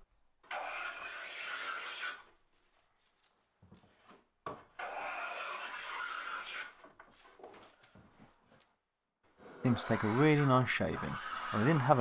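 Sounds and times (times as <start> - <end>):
hand plane cutting shavings: 0.5 - 2.3, 4.8 - 6.8, 9.4 - 12.0.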